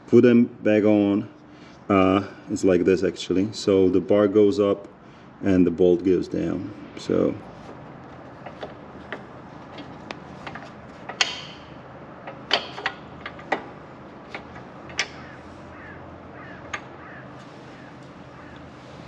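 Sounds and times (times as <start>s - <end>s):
metal bracket and bolt clicking: 8.0s - 15.5s, 16.6s - 17.0s.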